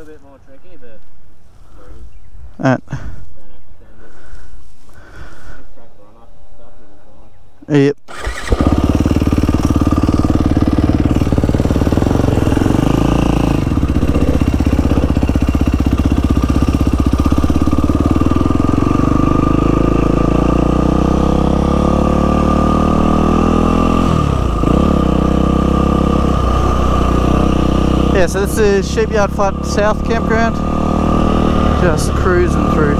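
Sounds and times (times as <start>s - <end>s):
dirt bike engine running: 8.1s - 32.9s.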